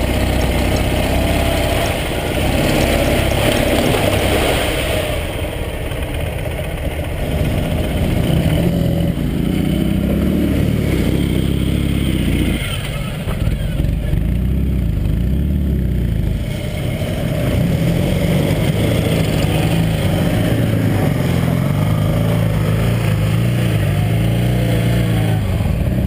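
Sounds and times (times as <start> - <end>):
motorcycle engine idling: 0.0 - 4.3, 5.2 - 26.0.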